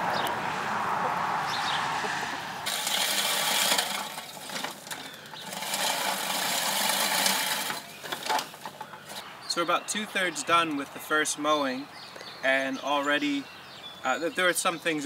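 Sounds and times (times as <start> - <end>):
push reel mower cutting grass: 2.6 - 9.3.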